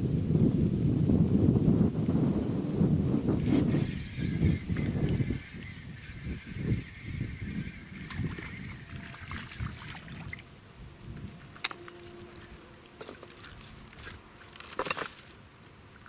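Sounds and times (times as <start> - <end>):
spinning reel cranking: 3.4 - 9.7
fishing line rustle: 3.4 - 16.0.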